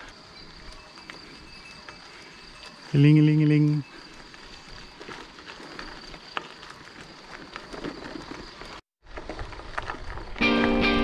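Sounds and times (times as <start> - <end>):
faint steady high tone: 0.0 - 5.2
tyres and wind rustle: 0.0 - 11.0.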